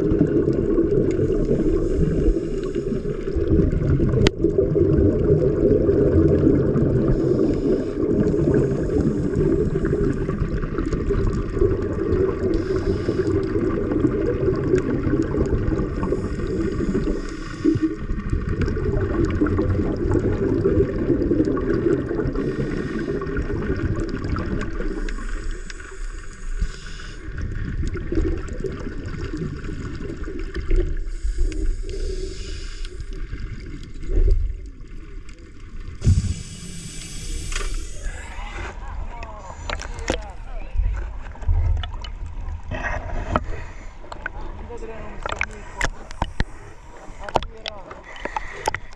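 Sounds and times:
gurgle of exhaled bubbles: 0:00.0 - 0:48.9
breath hissing through regulator: 0:01.1 - 0:03.4, 0:07.0 - 0:10.5, 0:12.3 - 0:14.0, 0:15.8 - 0:18.2, 0:22.1 - 0:27.5, 0:29.5 - 0:33.5, 0:36.0 - 0:38.8, 0:42.7 - 0:44.1.

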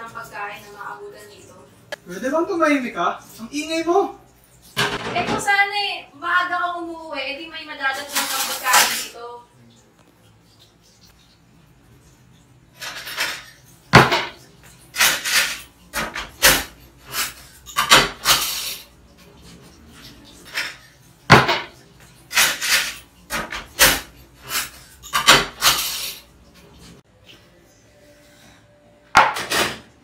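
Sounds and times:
dishes clattering in sink: 0:04.6 - 0:05.6, 0:07.9 - 0:09.2, 0:12.7 - 0:27.0, 0:29.1 - 0:30.0.

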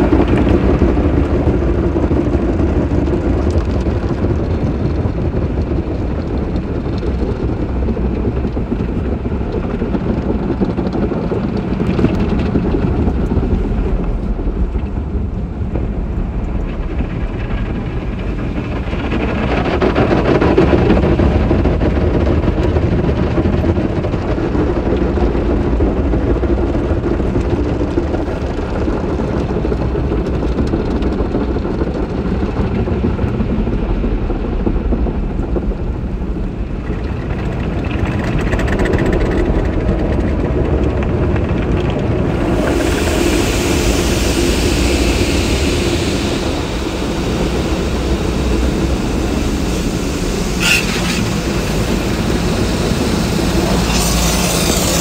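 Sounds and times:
car wash brushes and water spray: 0:42.2 - 0:55.0.

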